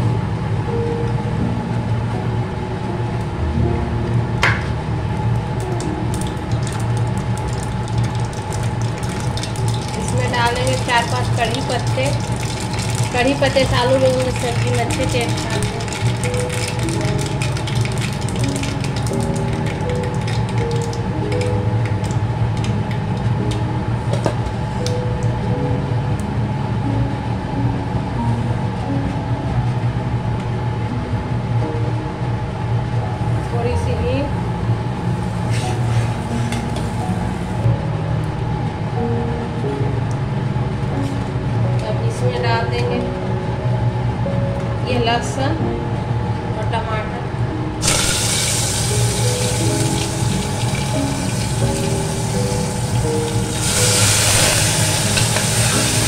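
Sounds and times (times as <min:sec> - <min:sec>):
steady low hum: 0:00.0 - 0:17.1, 0:19.2 - 0:56.0
seeds crackling in hot oil: 0:05.2 - 0:23.6, 0:47.8 - 0:56.0.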